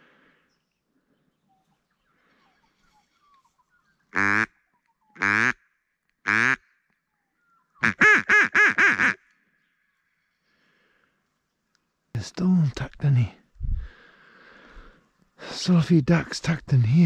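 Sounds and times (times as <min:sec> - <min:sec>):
duck quacking: 0:04.1 - 0:04.6, 0:05.2 - 0:05.6, 0:06.3 - 0:06.6, 0:07.8 - 0:09.2.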